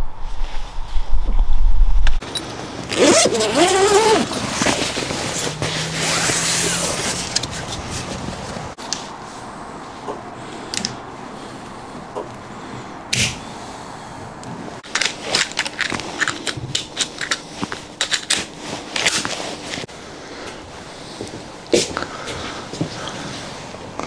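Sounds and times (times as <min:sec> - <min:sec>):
rustling and crackling: 0:00.3 - 0:09.2.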